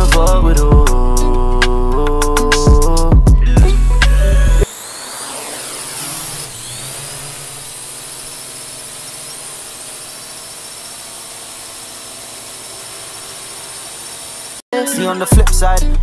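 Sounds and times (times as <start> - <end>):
drone propellers whining: 2.8 - 14.6.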